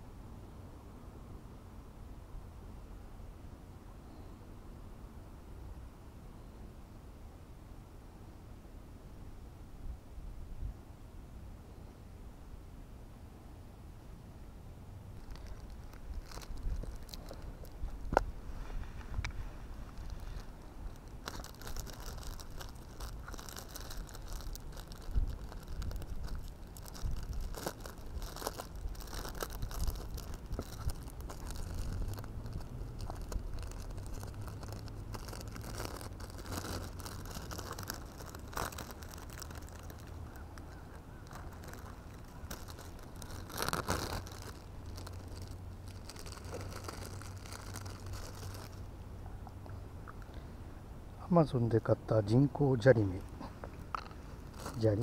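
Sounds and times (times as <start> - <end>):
plastic bag crinkling: 15.1 - 18.1, 19.2 - 48.9, 53.0 - 55.0.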